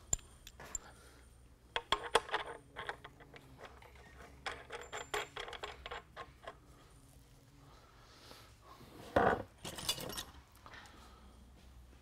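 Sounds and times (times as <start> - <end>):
metallic clicks of washer and nut: 0.0 - 0.9.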